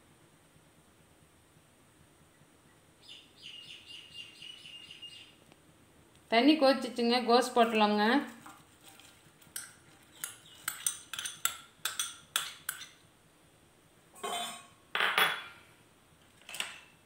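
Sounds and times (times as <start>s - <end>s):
metal spoon tapping glass bowl: 9.6s - 13.0s.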